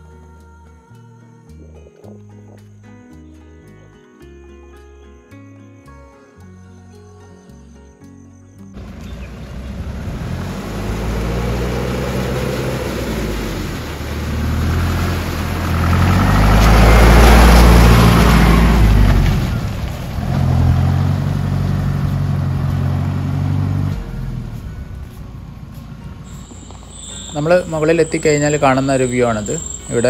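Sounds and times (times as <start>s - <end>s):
engine pulling under load: 8.8s - 30.0s.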